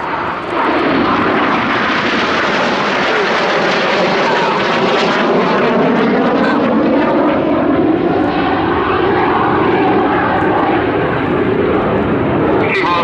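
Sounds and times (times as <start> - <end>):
jets flying past: 0.0 - 13.0.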